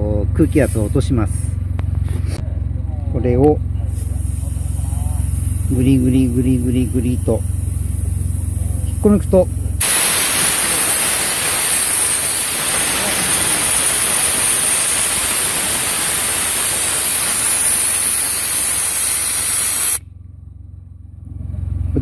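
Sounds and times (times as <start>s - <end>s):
air hissing out of a tyre: 0.4s - 1.2s, 3.8s - 8.7s, 9.8s - 20.0s.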